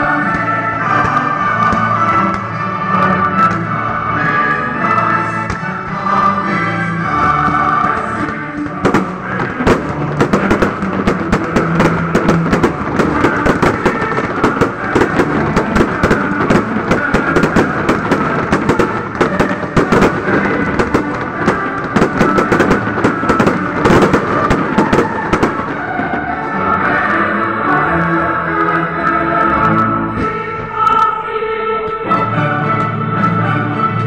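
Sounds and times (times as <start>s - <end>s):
music playing: 0.0s - 34.0s
fireworks bursting and crackling: 5.1s - 27.3s.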